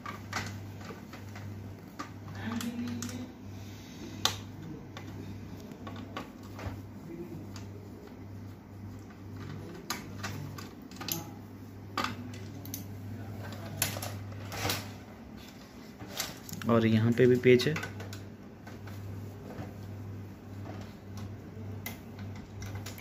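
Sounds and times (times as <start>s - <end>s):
steady low hum: 0.0s - 23.0s
clicks and clatter of printer parts: 22.1s - 23.0s.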